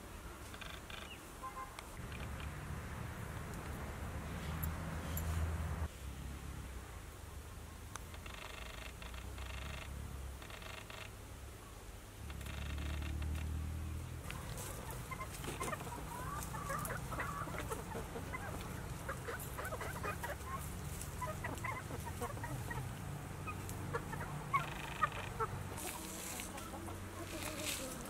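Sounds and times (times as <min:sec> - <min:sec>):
chickens clucking: 0:14.2 - 0:28.0.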